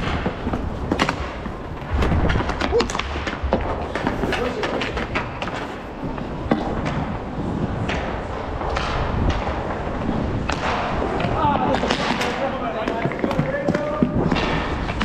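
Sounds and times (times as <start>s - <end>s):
sticks knocking puck: 0.0s - 7.2s, 10.4s - 15.0s
skate wheels rolling: 0.0s - 15.0s.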